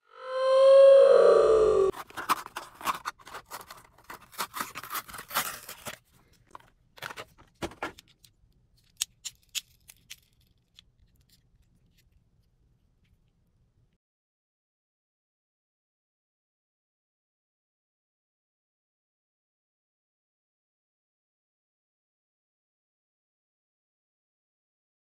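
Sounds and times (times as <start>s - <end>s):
packaging crinkling and tearing: 1.9s - 7.4s, 8.8s - 12.0s.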